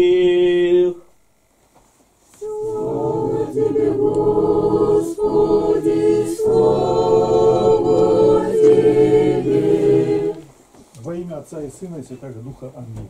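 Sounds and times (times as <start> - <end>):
group singing unaccompanied chant: 0.0 - 1.0, 2.4 - 10.6.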